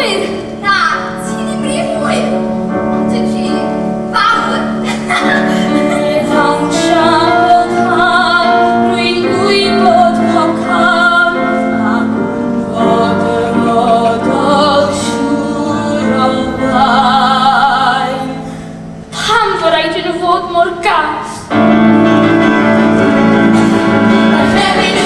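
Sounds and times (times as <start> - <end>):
backing music: 0.0 - 25.0
group singing with vibrato: 4.1 - 19.3, 21.8 - 25.0.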